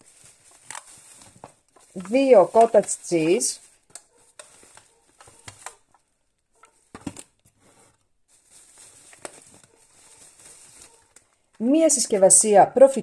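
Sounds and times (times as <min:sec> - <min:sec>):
plastic packaging rustling: 0:00.0 - 0:12.3.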